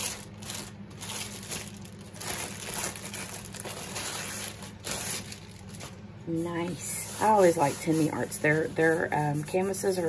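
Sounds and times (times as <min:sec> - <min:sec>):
plastic wrapping crinkling: 0:00.0 - 0:08.5.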